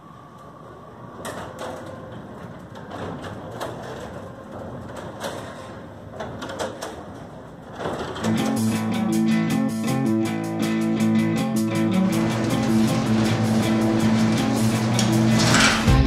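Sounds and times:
door sections clicking and knocking: 0:01.2 - 0:08.7, 0:12.0 - 0:16.0
door motor whine: 0:11.9 - 0:16.0.

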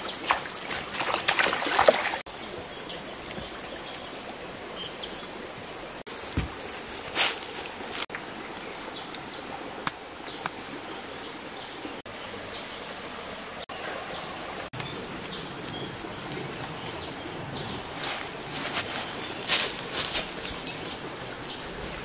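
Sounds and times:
forest insects droning: 0:00.0 - 0:22.0.

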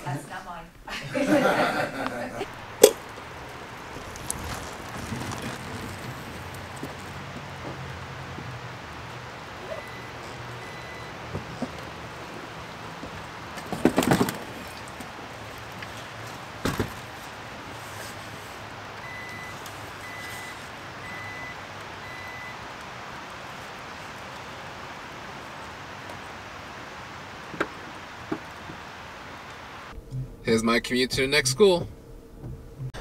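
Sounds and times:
wheelchair clattering: 0:02.5 - 0:08.8, 0:11.1 - 0:20.7.

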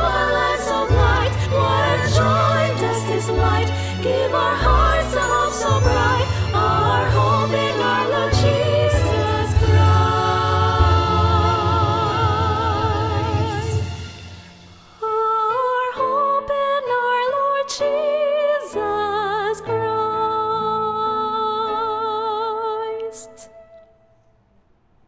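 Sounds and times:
group singing: 0:00.0 - 0:14.0
soft sustained backing music: 0:00.0 - 0:24.6
woman singing wordless melody: 0:15.0 - 0:23.8.

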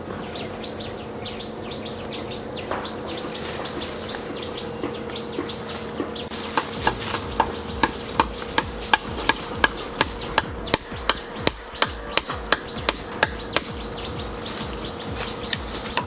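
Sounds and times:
hammer striking palm trunk: 0:04.8 - 0:14.1, 0:15.5 - 0:16.0.

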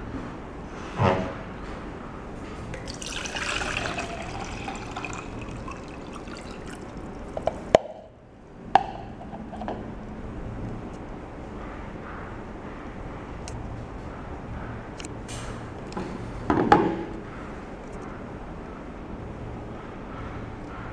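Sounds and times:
water pouring into plastic mug: 0:02.8 - 0:07.7.

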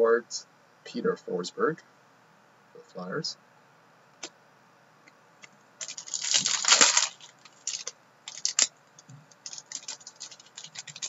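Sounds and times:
foil wrapper crinkling and tearing: 0:05.8 - 0:08.7, 0:09.4 - 0:11.0
cards clicking: 0:05.8 - 0:11.0.

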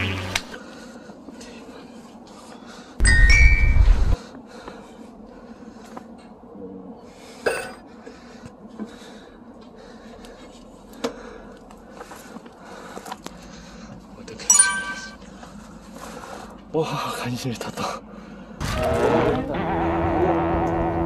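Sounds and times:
faint background hum: 0:00.0 - 0:18.6
ringing clink: 0:14.5 - 0:15.2.

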